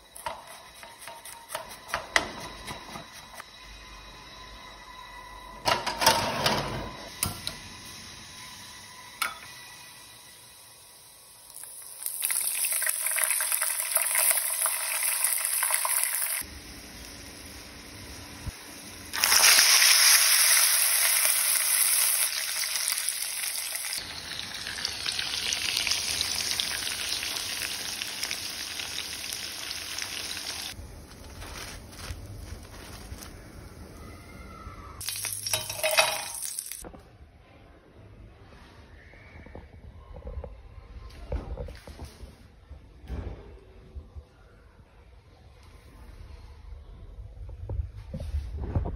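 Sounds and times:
meat sizzling in a frying pan: 11.6s - 30.8s, 35.0s - 36.8s.

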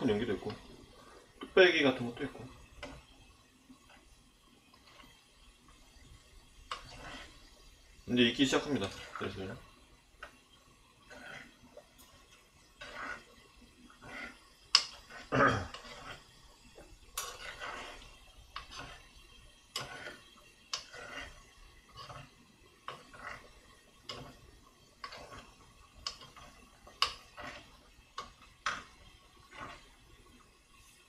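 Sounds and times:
spoon scraping earthenware pot: 5.7s - 7.6s, 8.5s - 9.4s, 11.0s - 30.0s.

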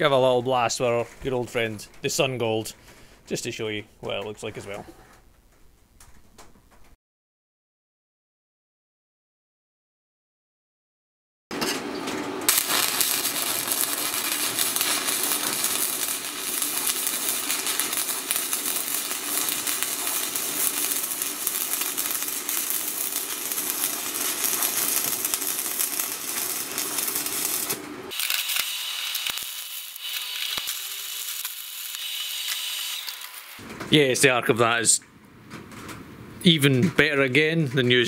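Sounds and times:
welding arc crackling: 12.5s - 33.6s.

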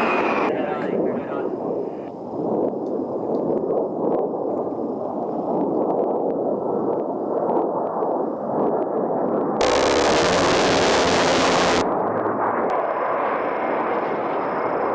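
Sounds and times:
jet engines rushing: 9.6s - 14.9s.

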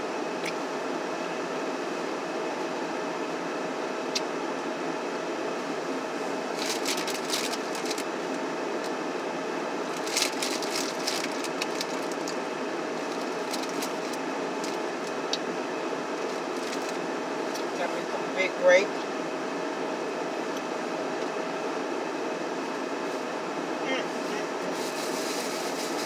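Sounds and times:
car heater fan blowing: 0.0s - 26.0s
food packaging crackling: 6.6s - 8.1s, 9.9s - 12.4s, 13.0s - 14.8s, 16.2s - 17.0s.

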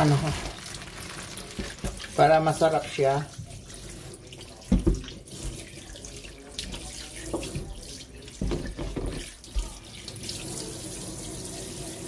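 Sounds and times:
tap running into metal sink: 4.6s - 5.7s, 8.4s - 9.7s.

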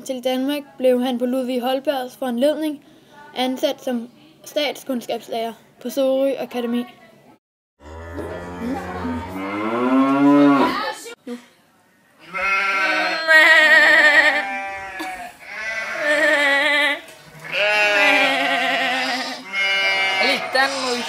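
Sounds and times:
boys imitating sheep bleating: 12.3s - 21.0s.

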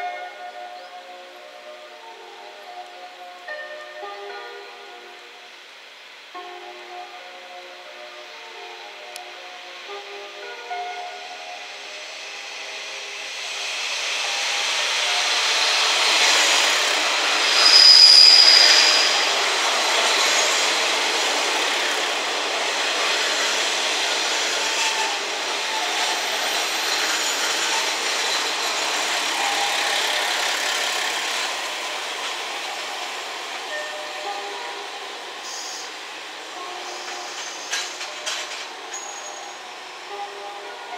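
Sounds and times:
train wheels rumbling on rails: 10.0s - 40.9s
high-pitched wheel squeal: 17.4s - 19.4s.

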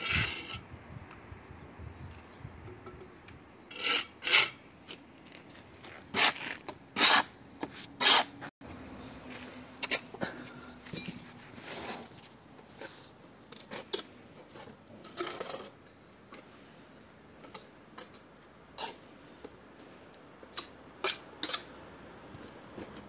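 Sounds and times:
trowel scraping mortar: 3.7s - 4.6s, 5.8s - 8.5s, 18.8s - 19.0s.

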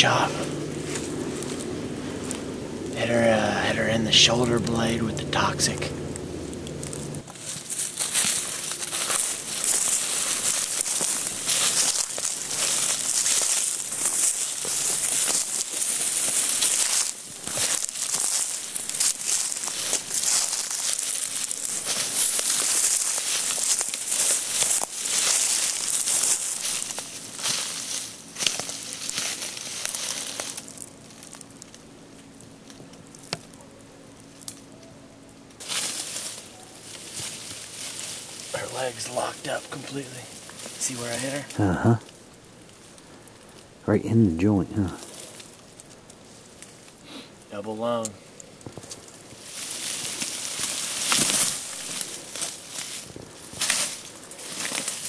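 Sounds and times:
footsteps through dry weeds: 0.3s - 3.1s, 5.6s - 33.3s, 35.6s - 41.6s, 45.0s - 47.1s, 48.6s - 55.0s
stems snapping: 5.7s - 38.6s, 45.0s - 55.0s.

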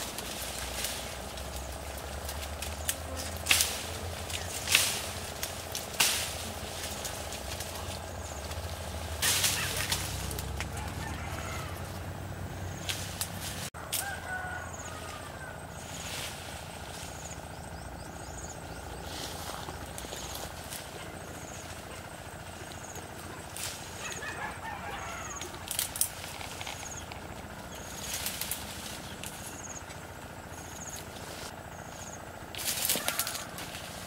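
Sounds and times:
sharp cracks of branches: 0.0s - 11.8s, 12.8s - 14.7s, 22.8s - 30.0s, 32.5s - 34.0s
steady low hum: 0.0s - 34.0s
vines and branches rustling: 0.0s - 34.0s.

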